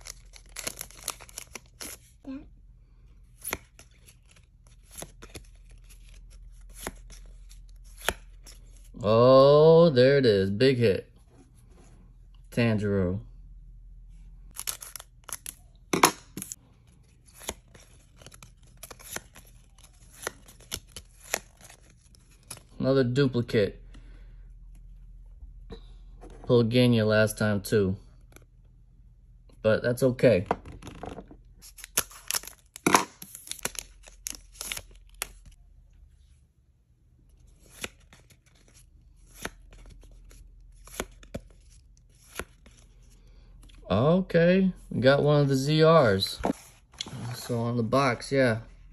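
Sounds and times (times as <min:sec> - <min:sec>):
foil cards flicking and sliding: 0:14.6 - 0:22.7, 0:37.6 - 0:43.0
cards clicking: 0:17.3 - 0:21.8.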